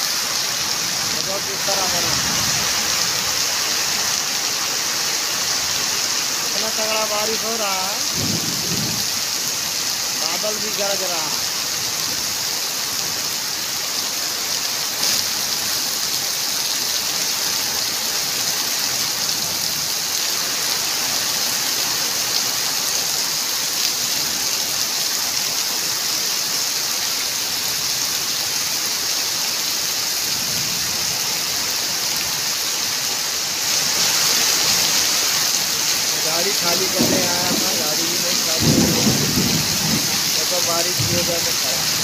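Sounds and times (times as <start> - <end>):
heavy rain pouring: 0.0 - 42.0.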